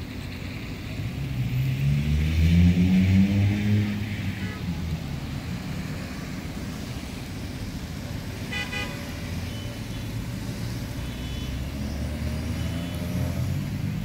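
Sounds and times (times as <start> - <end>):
road traffic rumbling: 0.0 - 14.0
car horn toot: 8.5 - 9.7.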